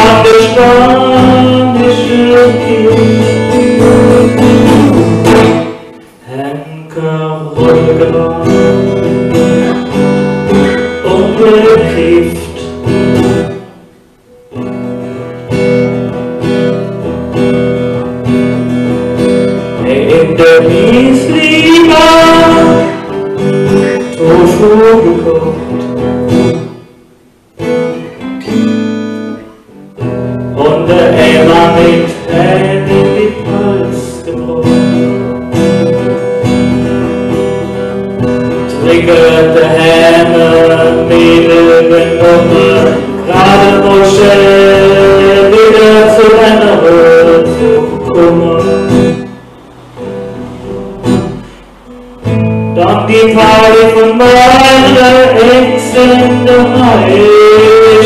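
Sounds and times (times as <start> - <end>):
guitar accompaniment: 0.0 - 58.0.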